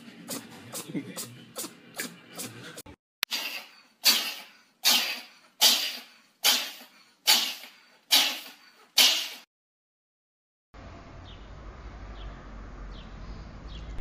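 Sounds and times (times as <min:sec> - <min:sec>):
cat sneezing: 0:03.3 - 0:09.4.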